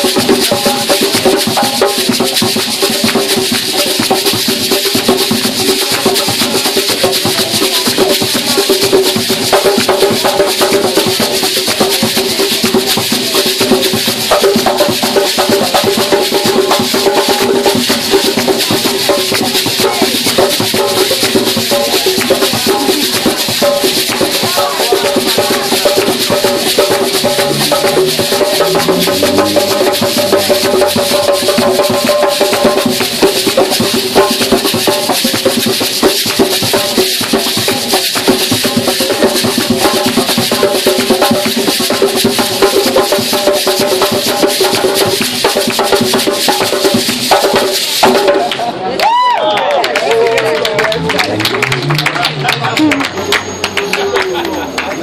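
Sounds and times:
hand drums playing fast rhythm: 0.0 - 55.0
people singing: 19.4 - 31.4.

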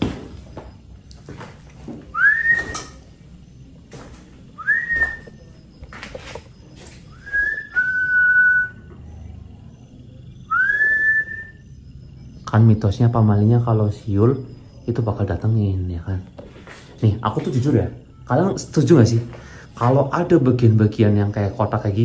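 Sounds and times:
man whistling calls: 2.1 - 3.0, 4.6 - 5.4, 7.1 - 8.9, 10.5 - 11.7.

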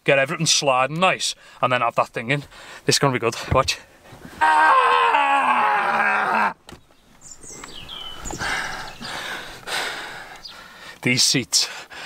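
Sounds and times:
man groaning: 4.4 - 6.6.

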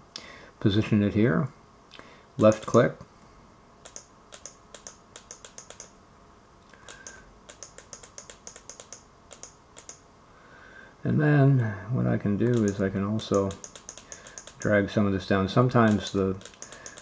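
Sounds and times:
computer mouse clicking: 2.4 - 2.8, 3.8 - 5.9, 6.7 - 10.0, 12.4 - 14.7, 15.8 - 17.0.

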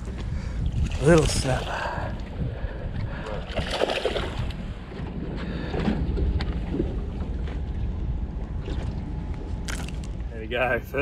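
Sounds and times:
water and boat noise: 0.0 - 11.0
wind rumbling on microphone: 0.0 - 11.0.

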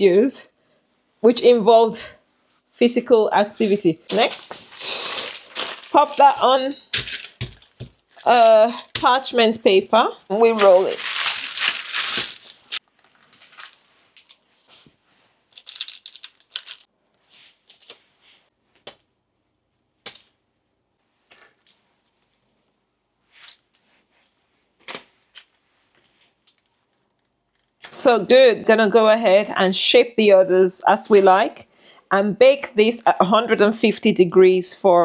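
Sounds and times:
parchment paper rustling: 3.6 - 9.7, 10.3 - 16.9.

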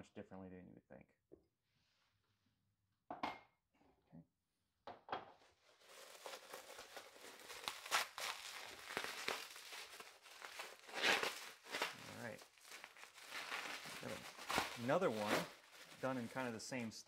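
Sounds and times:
bubble wrap crackling: 5.6 - 17.0.

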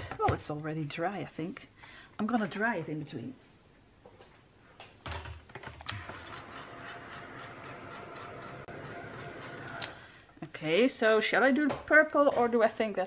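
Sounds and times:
heat tool fan blowing: 5.9 - 10.1.

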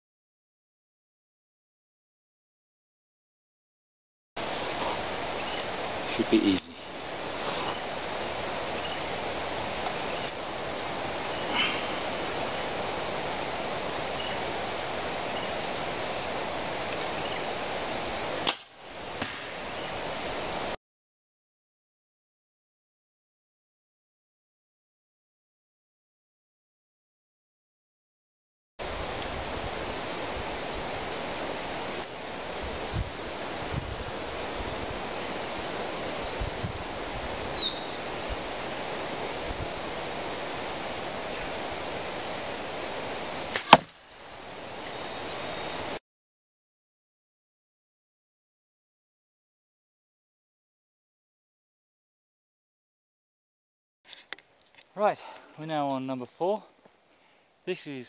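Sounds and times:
outdoor hiss: 4.4 - 20.8, 28.8 - 46.0, 54.1 - 58.0
bow release snap: 18.4 - 19.5, 43.5 - 44.0
arrow striking target: 18.4 - 19.6, 43.5 - 44.0.

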